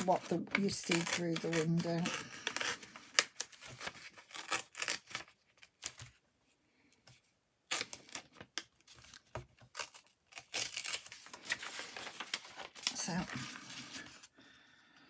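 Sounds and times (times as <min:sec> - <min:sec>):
paper rustling and tearing: 0:00.0 - 0:06.2, 0:07.7 - 0:14.3.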